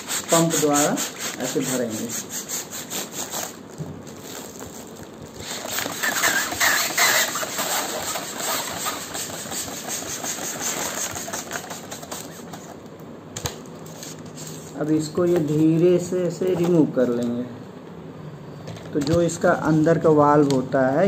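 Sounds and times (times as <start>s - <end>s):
hand pump inflating balloon: 0.0s - 3.6s, 5.4s - 12.8s.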